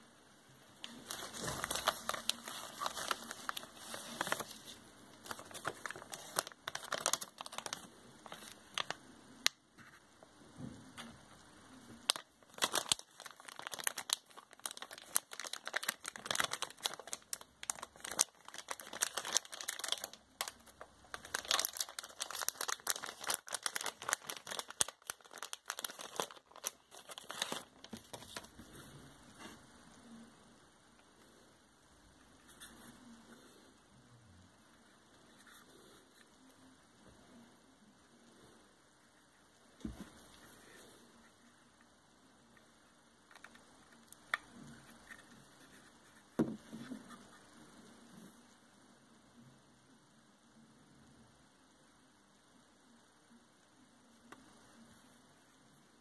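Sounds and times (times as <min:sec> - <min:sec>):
plastic packaging crinkling: 0:00.8 - 0:09.0, 0:12.0 - 0:28.6.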